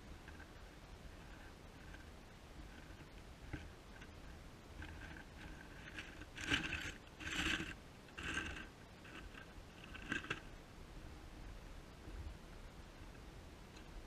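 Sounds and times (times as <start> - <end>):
mouse scratching and rustling: 0.2 - 10.5.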